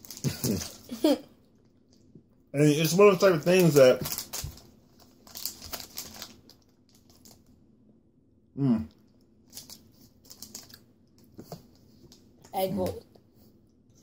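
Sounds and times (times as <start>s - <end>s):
plastic wrapper crinkling: 0.0s - 0.9s, 2.8s - 7.5s, 9.4s - 11.3s.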